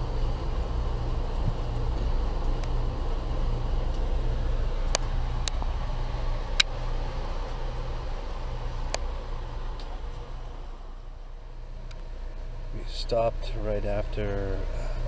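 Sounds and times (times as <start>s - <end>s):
train rumbling: 0.0s - 6.6s.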